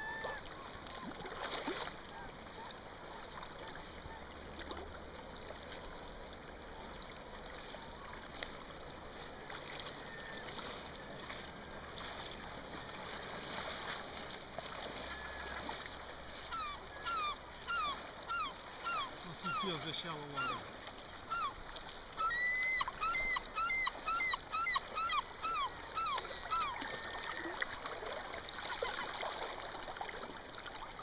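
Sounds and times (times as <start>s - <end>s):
gulls calling: 0.0s - 1.2s, 14.8s - 28.0s
river water flowing: 0.0s - 31.0s.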